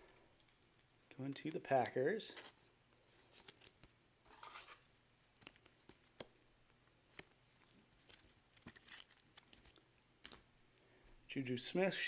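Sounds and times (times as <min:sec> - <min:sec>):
trading cards clicking and rustling: 0:07.1 - 0:10.5.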